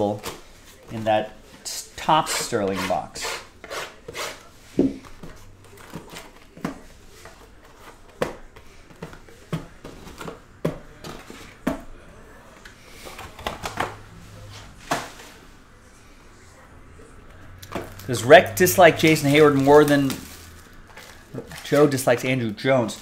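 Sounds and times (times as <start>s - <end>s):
packaging rustling: 17.6s - 22.3s.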